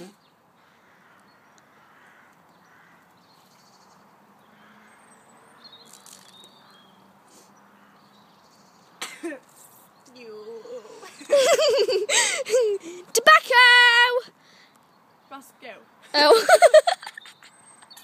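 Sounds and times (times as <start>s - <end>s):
distant bird calls: 0.0s - 13.0s, 14.3s - 18.0s.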